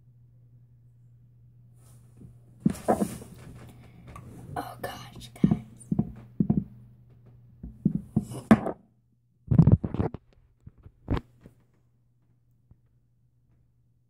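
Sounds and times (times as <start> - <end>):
faint low hum: 0.0 - 14.0
phone handling bumps and rubs: 2.6 - 4.6.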